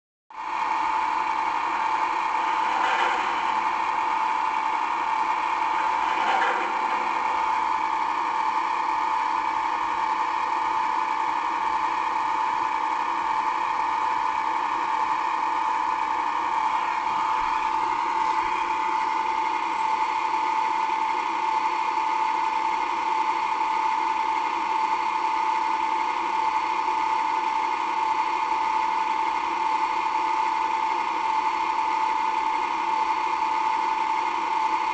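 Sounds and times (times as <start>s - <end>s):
locomotive engine drone: 1.0s - 10.0s, 15.7s - 22.9s.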